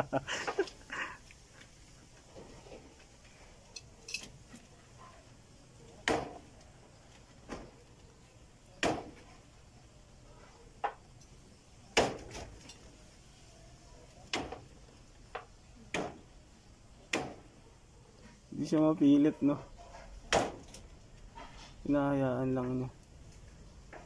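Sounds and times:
sharp clinks and knocks: 3.7 - 4.6.

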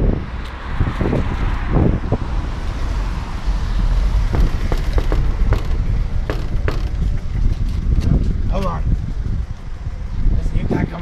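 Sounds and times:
wind rumble on microphone: 0.0 - 11.0
fist knocking on metal door: 4.3 - 7.1.

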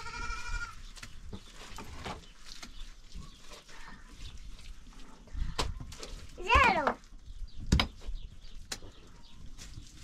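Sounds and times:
livestock bleat: 0.0 - 0.8.

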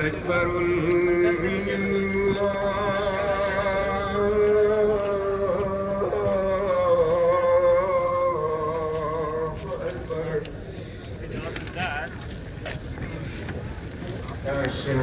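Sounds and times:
person chanting melodically: 0.0 - 10.5.

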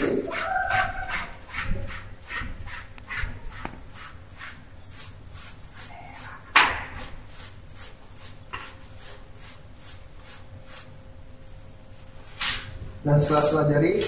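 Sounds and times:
soapy hands rubbing together: 0.0 - 11.0.

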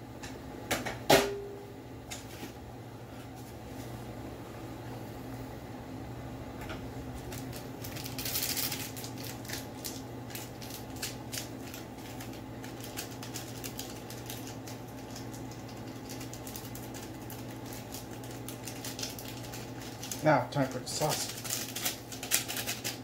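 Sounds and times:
steady low hum: 0.0 - 23.0
foil packet crinkling: 7.1 - 23.0.

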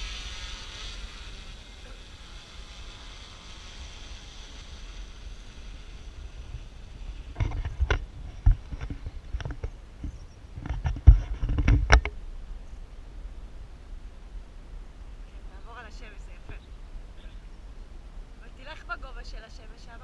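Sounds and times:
drone propellers whirring: 0.0 - 9.7
thumps on microphone: 7.4 - 12.2.

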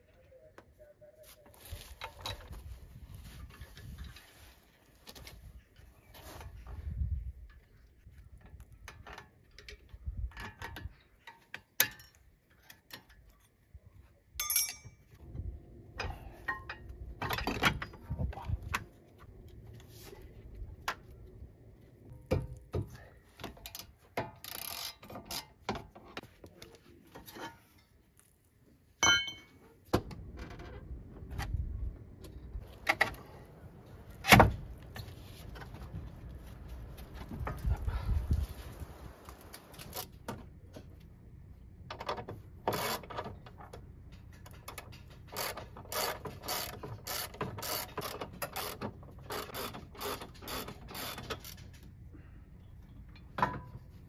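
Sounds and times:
metal tools clinking and knocking: 14.4 - 15.2, 29.0 - 29.6.

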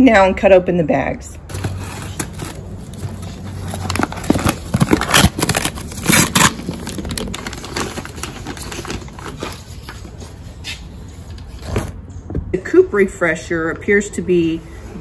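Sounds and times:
packaging crinkling and rustling: 1.5 - 10.4.

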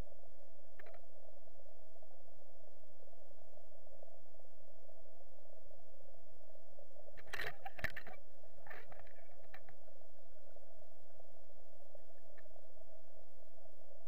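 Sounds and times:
underwater hum: 0.0 - 14.0
faint ticks: 0.7 - 1.1, 7.0 - 11.2, 11.9 - 13.0.

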